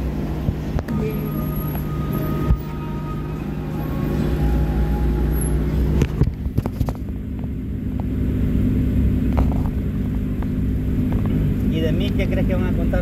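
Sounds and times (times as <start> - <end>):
car engine running: 0.0 - 13.0
road rumble: 0.0 - 13.0.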